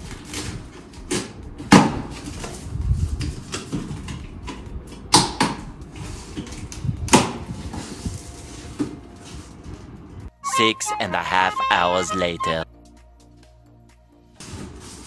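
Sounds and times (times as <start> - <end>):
cardboard scraping and rustling: 0.0 - 1.3, 2.0 - 4.2, 7.4 - 9.8, 14.4 - 15.0
packing tape being slit: 0.0 - 4.2, 5.2 - 9.6.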